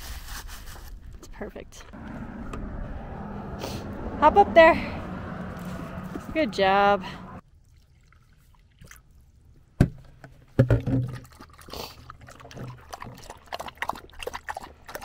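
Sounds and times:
dog lapping water: 0:11.0 - 0:15.0.

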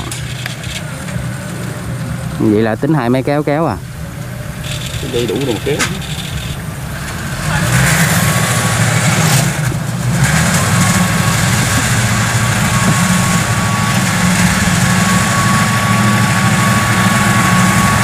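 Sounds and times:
thin high whine: 0:00.0 - 0:09.6, 0:10.5 - 0:18.0
tractor engine running: 0:00.0 - 0:18.0.

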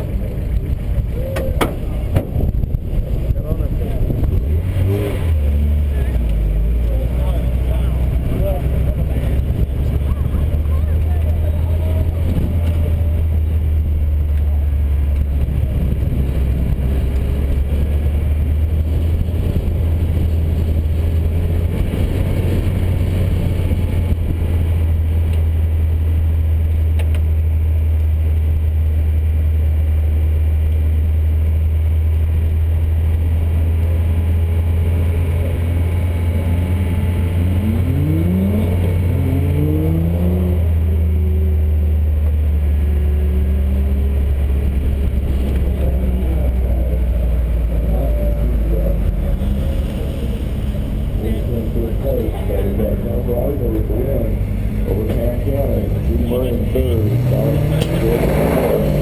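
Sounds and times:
car engine revving hard: 0:03.4 - 0:24.8, 0:33.5 - 0:59.0.

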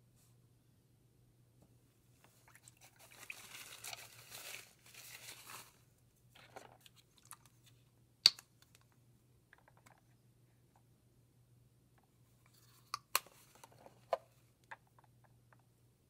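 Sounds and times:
crinkling paper rustle: 0:02.3 - 0:07.8.

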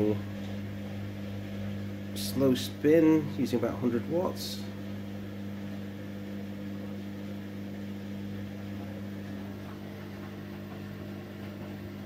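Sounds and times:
washing machine spinning: 0:00.0 - 0:12.0.

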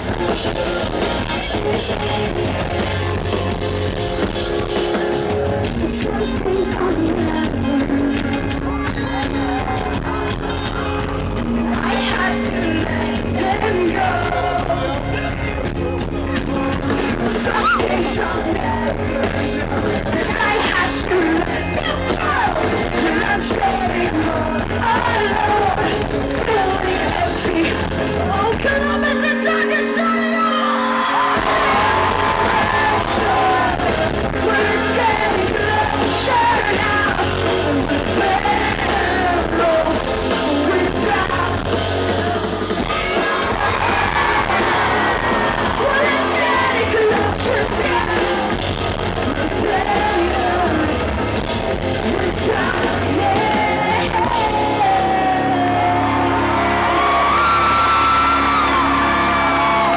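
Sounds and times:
woman singing lead vocal: 0:00.0 - 0:02.8, 0:05.6 - 0:10.6, 0:11.6 - 0:15.3, 0:16.7 - 0:59.9
live pop-punk band playing: 0:00.0 - 0:59.9.

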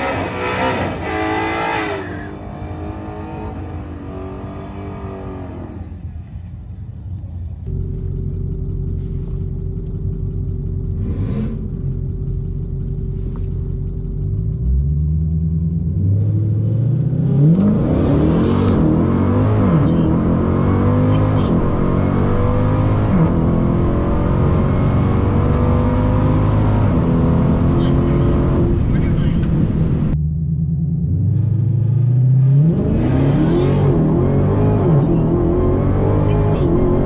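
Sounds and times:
car engine revving: 0:00.0 - 0:06.2, 0:07.2 - 0:37.0
car engine idling: 0:05.6 - 0:16.0, 0:19.9 - 0:32.0.

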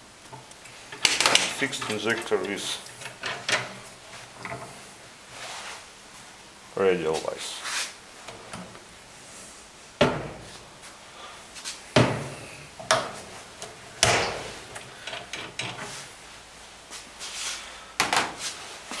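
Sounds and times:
metal clamping device clunks: 0:12.0 - 0:16.0.

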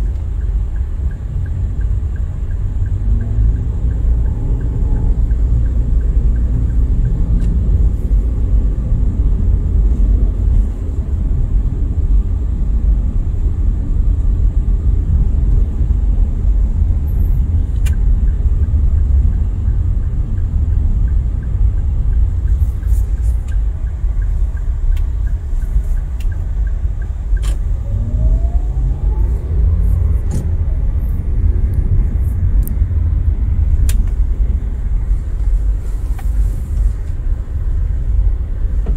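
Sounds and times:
car engine and road noise: 0:00.0 - 0:38.9
short rising whine: 0:27.7 - 0:31.7.

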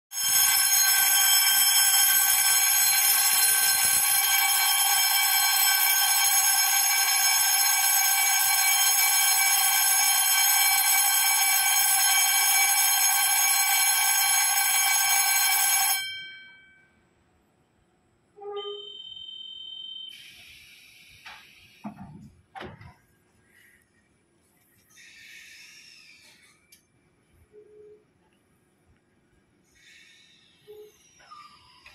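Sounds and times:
electric departure bell ringing: 0:00.1 - 0:17.0
short electronic tone: 0:18.4 - 0:20.6.

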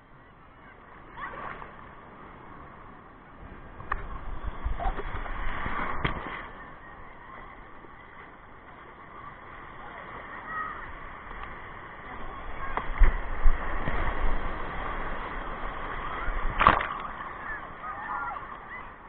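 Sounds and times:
surf washing and splashing: 0:00.0 - 0:19.0
wave rumble: 0:00.0 - 0:19.0
water slapping against camera: 0:04.8 - 0:06.6, 0:15.9 - 0:17.4.

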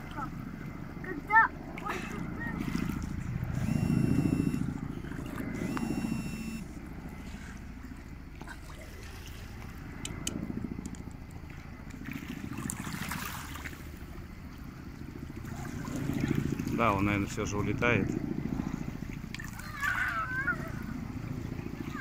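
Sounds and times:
distant helicopter rotor drone: 0:00.0 - 0:22.0
water lapping at shore: 0:00.0 - 0:22.0
short high-pitched whistle tones: 0:03.6 - 0:04.7, 0:05.6 - 0:06.7.

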